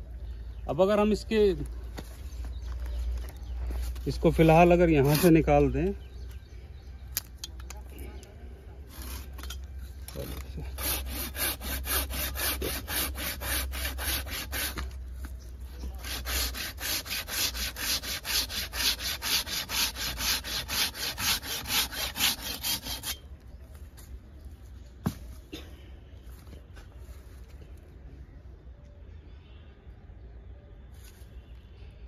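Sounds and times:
hand saw cutting wood: 5.0s - 5.4s, 10.7s - 15.0s, 15.9s - 23.2s.

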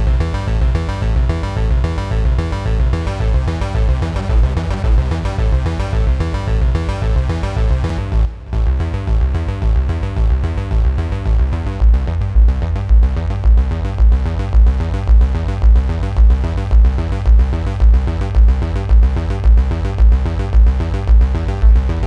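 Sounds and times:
synth arpeggio: 0.0s - 13.8s
deep synth pulse: 0.0s - 22.0s.

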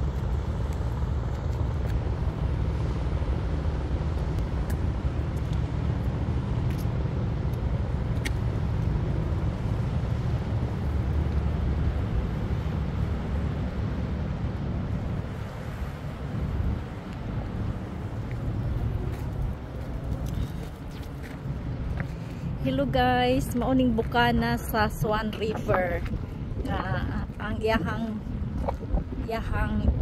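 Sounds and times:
wind buffeting microphone: 0.0s - 30.0s.

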